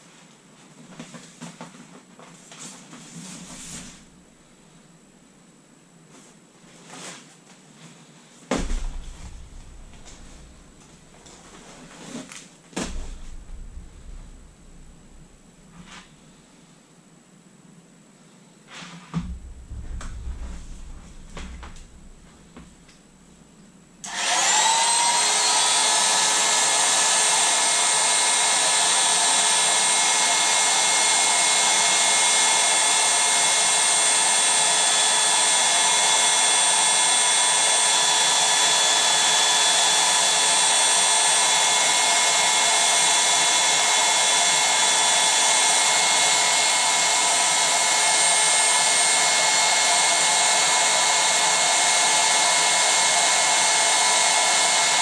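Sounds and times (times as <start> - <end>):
electric air pump whining: 3.1 - 4.4, 8.5 - 12.2, 12.8 - 16.4, 19.1 - 55.0
rush of air: 8.5 - 11.8, 12.8 - 16.3, 19.2 - 23.8.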